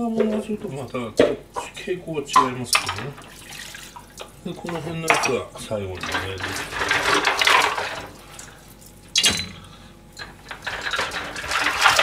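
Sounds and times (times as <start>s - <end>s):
water running from tap: 2.4s - 4.3s, 10.5s - 12.0s.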